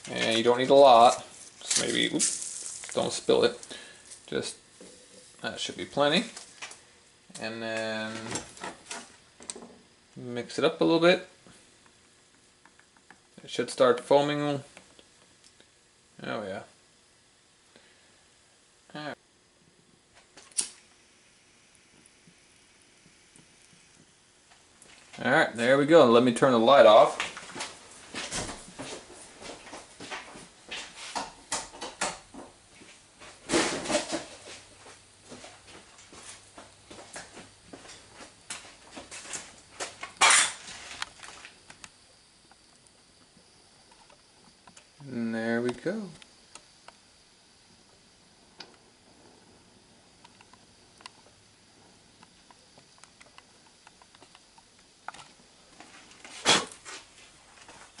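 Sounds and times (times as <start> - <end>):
knocks and shuffling in a room: 0.0 - 16.7, 23.0 - 58.0
crackling and ticking: 20.0 - 25.0, 50.1 - 55.4.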